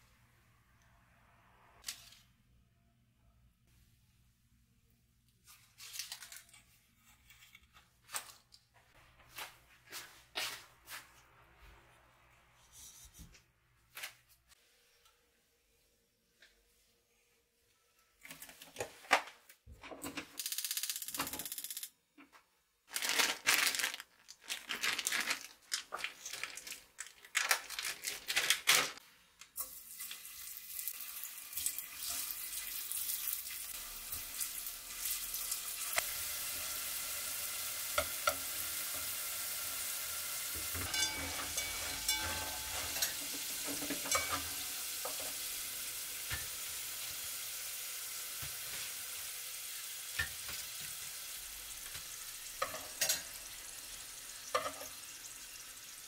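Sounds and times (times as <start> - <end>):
food deep-frying in oil: 29.6 - 56.0.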